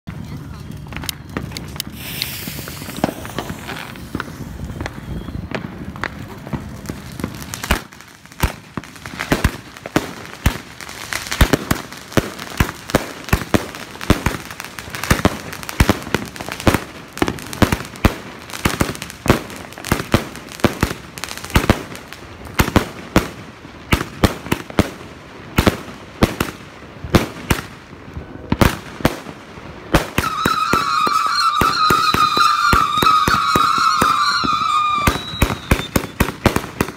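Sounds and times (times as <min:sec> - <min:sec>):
firework whistling: 0:01.4 - 0:07.9, 0:30.0 - 0:36.9
firework cake bangs: 0:30.0 - 0:36.9.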